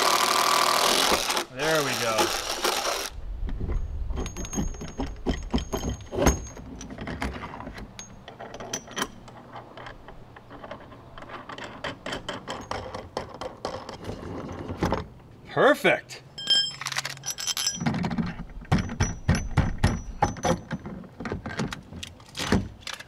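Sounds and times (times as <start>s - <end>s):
metal clicks and knocks: 3.4s - 15.1s, 16.4s - 23.0s
steel bolt clinking and scraping: 3.6s - 15.0s, 16.3s - 23.0s.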